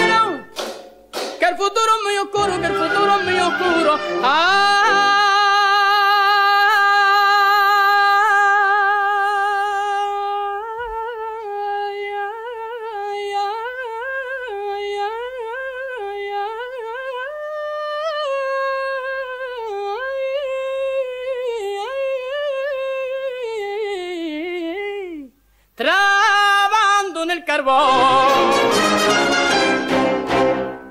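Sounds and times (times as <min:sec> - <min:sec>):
man singing wavering melisma: 0:01.4 - 0:06.6.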